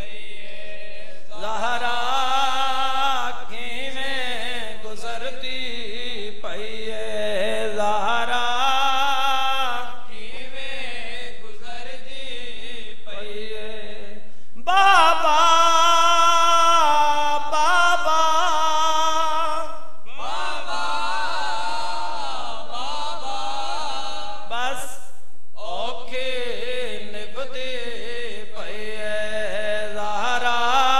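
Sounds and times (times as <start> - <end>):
men chanting a lament: 0.0 - 30.9.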